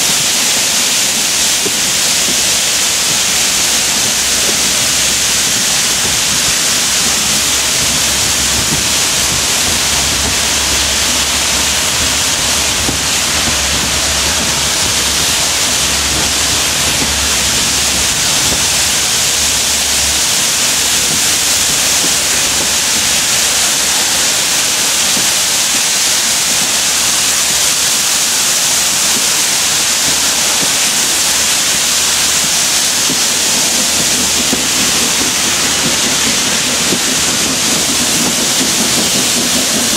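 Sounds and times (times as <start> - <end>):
steam locomotive exhaust rushing: 0.0 - 39.9
low rumble: 3.3 - 25.4.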